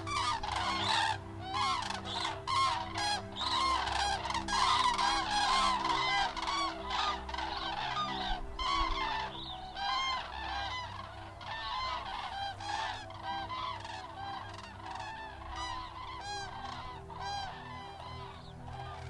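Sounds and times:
cranes honking: 0.0 - 19.0.

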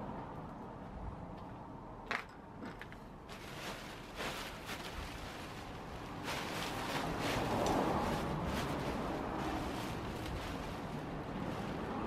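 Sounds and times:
plastic sheet rustling: 3.3 - 12.0.

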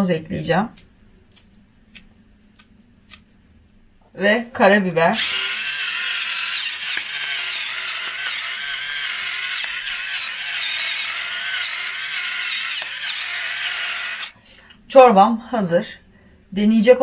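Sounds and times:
pepper grinder grinding: 5.2 - 14.3.

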